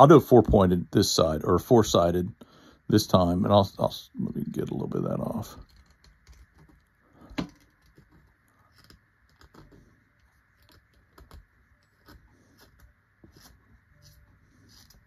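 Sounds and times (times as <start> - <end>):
knife shaving pencil point: 7.5 - 15.0.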